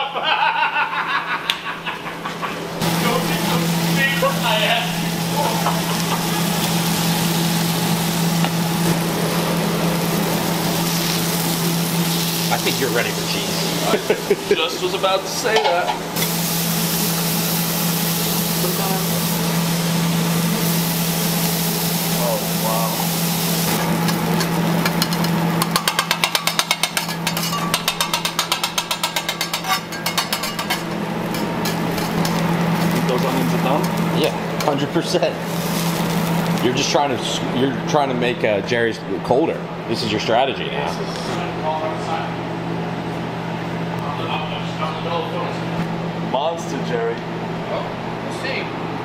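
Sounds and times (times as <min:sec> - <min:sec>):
kitchen machine hum: 0:00.0 - 0:49.0
food sizzling on griddle: 0:02.8 - 0:37.0
metal spatula scraping griddle: 0:23.7 - 0:32.9.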